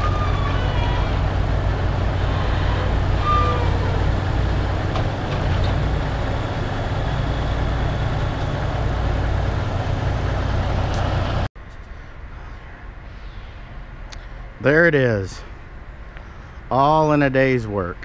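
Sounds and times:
heavy diesel engines running: 0.0 - 11.5.

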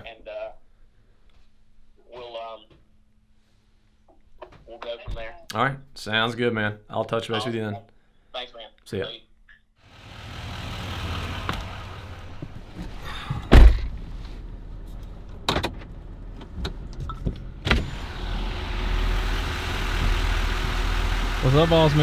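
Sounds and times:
engine and road rumble: 9.8 - 22.0.

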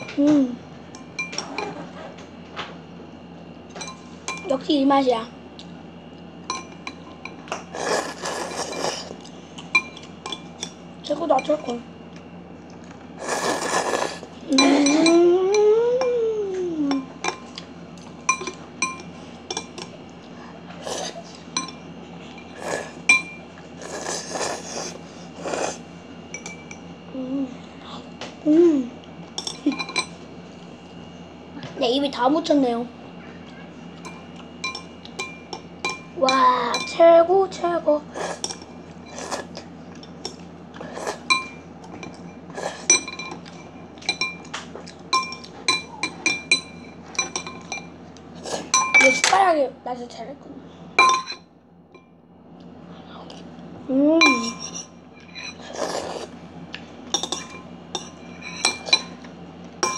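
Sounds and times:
utensils clinking against a bowl: 0.9 - 2.2, 3.7 - 4.6, 6.4 - 16.2, 16.8 - 26.9, 29.2 - 30.2, 34.0 - 37.1, 38.2 - 49.5, 51.0 - 52.1, 54.2 - 56.4, 57.0 - 59.9
slurping noodles: 7.7 - 9.2, 13.2 - 14.4, 22.5 - 23.0, 23.8 - 25.8, 55.6 - 56.4.

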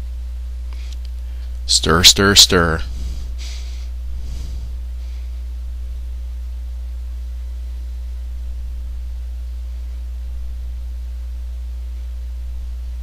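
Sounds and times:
steady low hum: 0.0 - 13.0
faint hiss: 1.8 - 5.5.

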